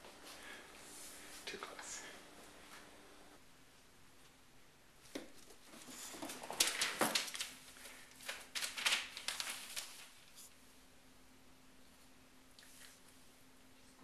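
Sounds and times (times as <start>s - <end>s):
newspaper rustling and crinkling: 5.7s - 10.4s.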